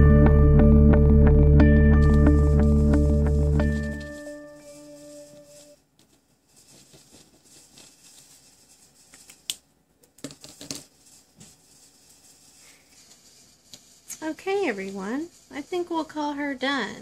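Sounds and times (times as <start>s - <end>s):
handling art supplies: 3.5s - 11.6s.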